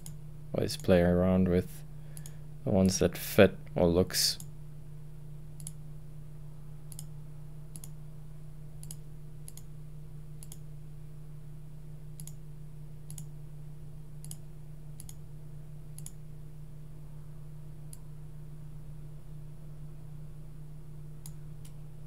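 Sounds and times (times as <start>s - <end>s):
steady low hum: 0.0s - 22.0s
computer mouse clicking: 5.6s - 5.8s, 6.9s - 7.1s, 7.7s - 8.0s, 8.8s - 9.7s, 10.4s - 10.6s, 12.2s - 12.4s, 13.1s - 13.3s, 14.2s - 14.4s, 15.0s - 15.2s, 15.9s - 16.2s.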